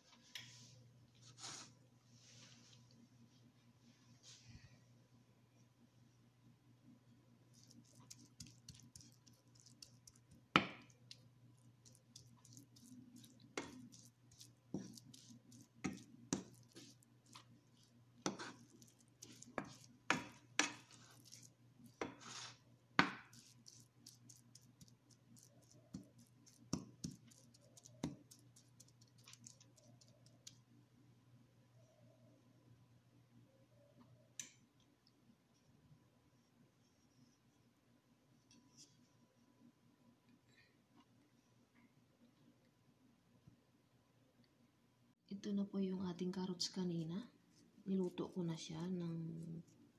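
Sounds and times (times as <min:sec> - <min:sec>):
spatula scraping a frying pan: 0:18.3 - 0:22.6.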